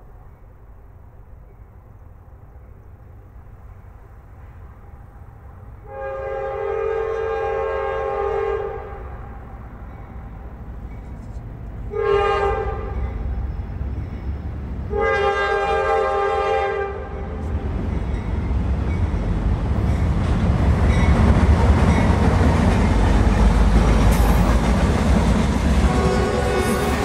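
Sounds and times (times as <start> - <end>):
train air horn: 5.8 - 9.5, 11.9 - 13.2, 14.9 - 17.5, 25.8 - 27.0
locomotive engine rumble: 8.8 - 16.3, 17.0 - 27.0
train wheels on rails: 9.2 - 27.0.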